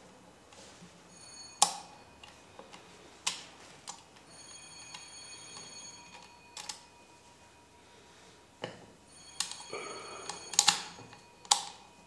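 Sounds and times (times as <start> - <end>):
faint high metallic ring: 0.9 - 2.6, 4.2 - 12.0.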